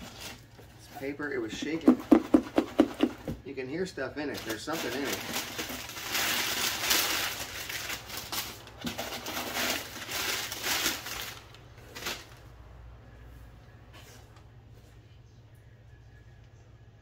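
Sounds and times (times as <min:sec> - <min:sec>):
packing paper rustling and crinkling: 0:00.0 - 0:02.0, 0:04.2 - 0:12.4.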